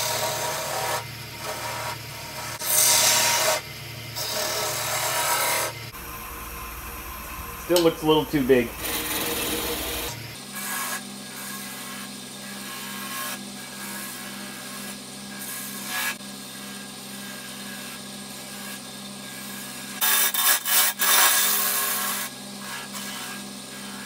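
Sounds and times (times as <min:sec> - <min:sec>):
turning tool scraping wood: 0:00.0 - 0:03.6, 0:04.2 - 0:06.1, 0:07.0 - 0:24.0
wood lathe humming: 0:00.0 - 0:10.4.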